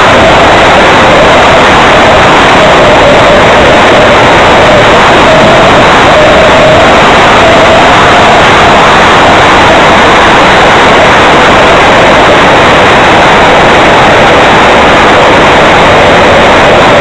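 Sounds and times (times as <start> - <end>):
electric ducted fan whine: 0.0 - 17.0
rushing air: 0.0 - 17.0.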